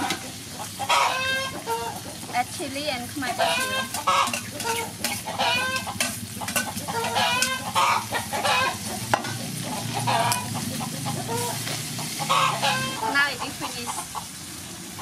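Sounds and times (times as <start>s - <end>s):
metal spatula scraping wok: 0.0s - 13.7s
chickens clucking: 0.0s - 15.0s
food sizzling in a wok: 0.0s - 15.0s
spatula clinking on pan: 3.8s - 7.6s.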